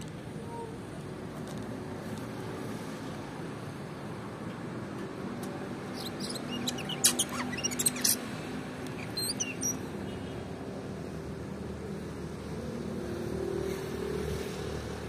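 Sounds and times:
bird chirping and whistling: 0:06.0 - 0:08.2, 0:09.0 - 0:09.8.

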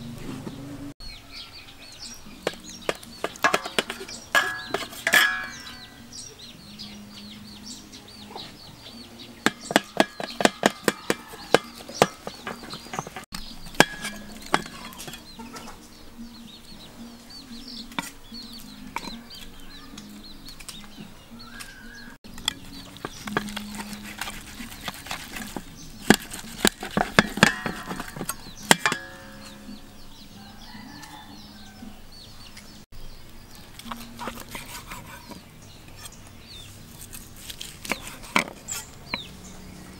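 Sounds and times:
chickens clucking: 0:00.0 - 0:36.8
knife chopping on wooden board: 0:09.5 - 0:15.2.

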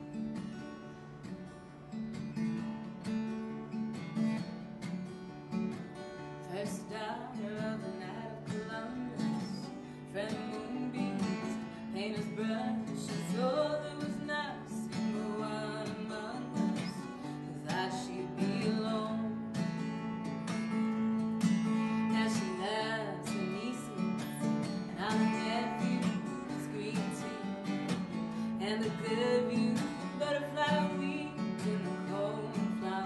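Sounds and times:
acoustic guitar strummed: 0:00.0 - 0:33.0
woman's wordless vocal melody: 0:06.4 - 0:19.6, 0:21.8 - 0:33.0.

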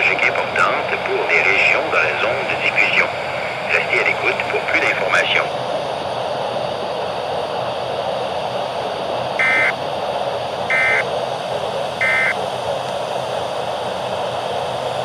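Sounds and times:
radio static hiss: 0:00.0 - 0:15.0
short electronic alert beeps: 0:09.4 - 0:09.7, 0:10.7 - 0:11.0.

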